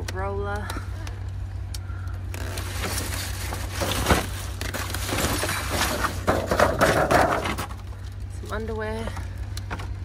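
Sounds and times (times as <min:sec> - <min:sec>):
rustling and clattering of items: 0:02.3 - 0:08.3.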